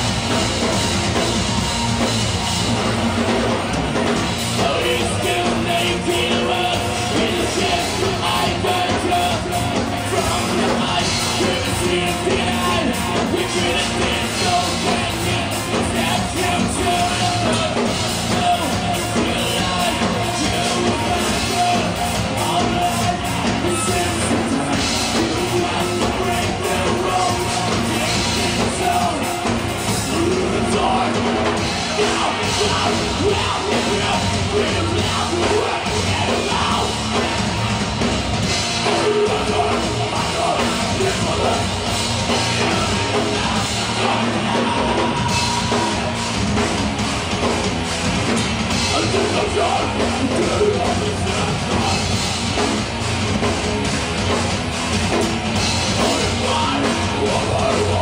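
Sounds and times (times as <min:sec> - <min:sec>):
bass guitar: 0:00.0 - 0:58.0
distorted guitar: 0:00.0 - 0:58.0
drum kit: 0:00.0 - 0:58.0
person singing: 0:04.4 - 0:37.4, 0:38.8 - 0:46.2, 0:55.9 - 0:58.0.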